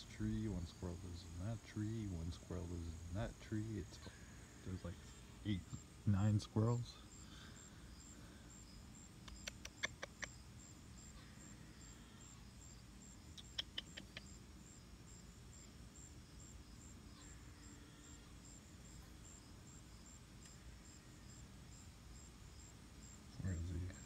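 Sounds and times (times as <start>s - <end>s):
insect chirping faintly: 0.0s - 24.0s
sharp clicks: 9.2s - 10.4s, 13.4s - 14.3s.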